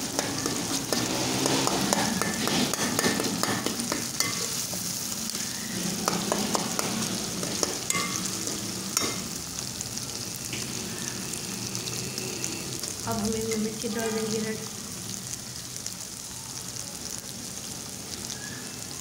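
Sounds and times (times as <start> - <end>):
metal spatula scraping a pan: 0.0 - 9.4
vegetables sizzling in hot oil: 0.0 - 19.0.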